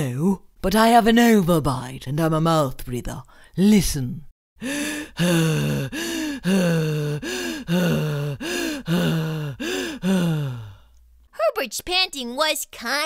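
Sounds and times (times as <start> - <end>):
person panting like a monster: 4.6 - 10.9.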